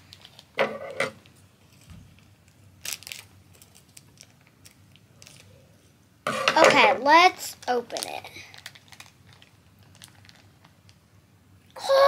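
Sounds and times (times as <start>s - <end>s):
plastic packet crinkling: 0.0s - 0.6s, 1.7s - 5.6s, 7.0s - 11.0s.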